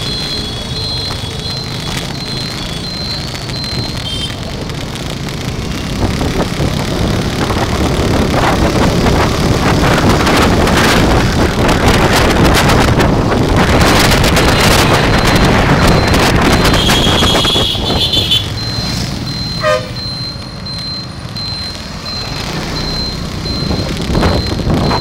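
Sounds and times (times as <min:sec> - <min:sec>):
faint high beep: 0:00.0 - 0:04.3, 0:18.6 - 0:25.0
road and traffic noise: 0:00.0 - 0:25.0
wind rushing over microphone: 0:05.8 - 0:18.3, 0:23.3 - 0:25.0.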